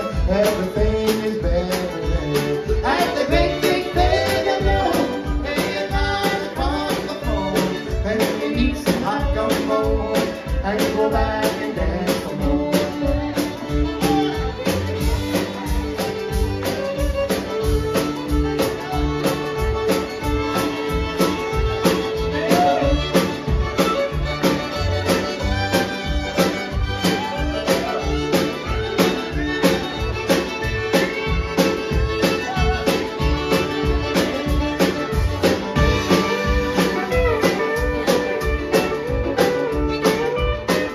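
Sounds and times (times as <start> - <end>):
country band playing: 0.0 - 40.9
steady drum beat: 0.0 - 40.9.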